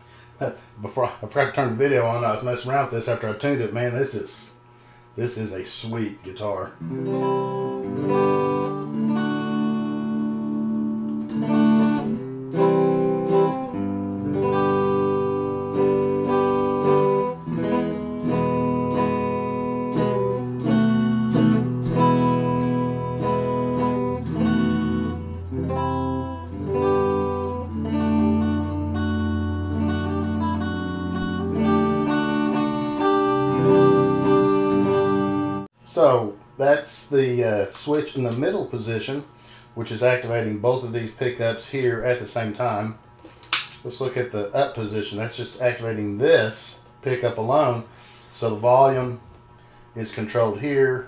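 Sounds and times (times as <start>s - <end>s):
electric guitar strumming chords: 6.8s - 35.7s.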